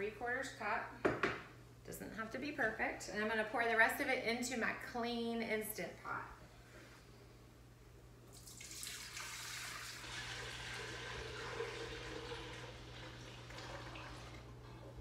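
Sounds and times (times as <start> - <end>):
milk pouring into metal pot: 8.3 - 15.0.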